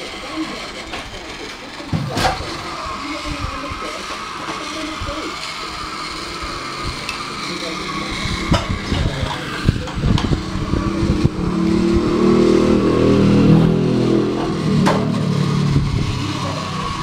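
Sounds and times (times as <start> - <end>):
toy train motor humming: 0.0 - 17.0.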